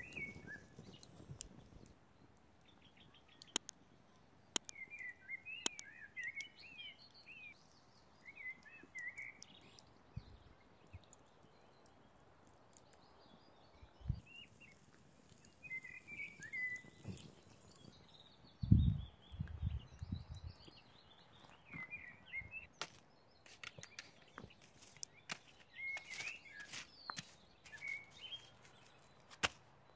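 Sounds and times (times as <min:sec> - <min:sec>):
small birds chirping: 0:00.0 - 0:29.9
sharp clicks: 0:03.4 - 0:03.8, 0:04.5 - 0:04.8.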